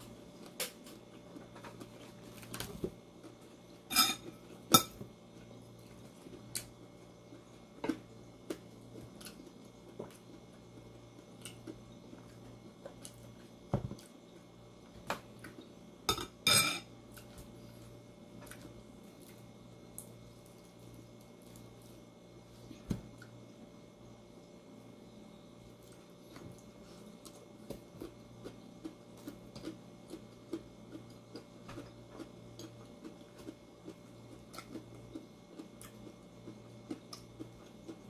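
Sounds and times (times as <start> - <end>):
faint steady low hum: 0.0 - 38.0
dishes and cutlery clinking: 3.9 - 5.0, 16.1 - 16.9.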